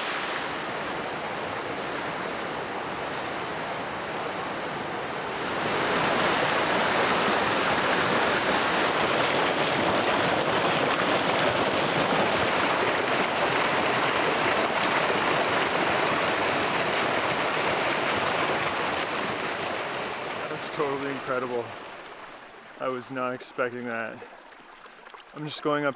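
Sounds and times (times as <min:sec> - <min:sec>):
waterfall splashing: 0:00.0 - 0:00.8, 0:09.3 - 0:24.7.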